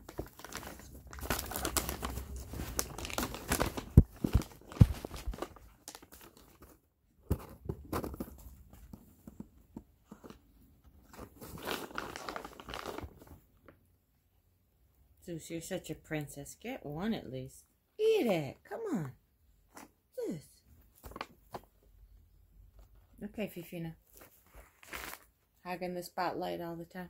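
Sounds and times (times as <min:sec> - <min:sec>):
plastic bag crinkling and tearing: 0:00.0 - 0:06.8, 0:11.0 - 0:13.4, 0:24.1 - 0:25.3.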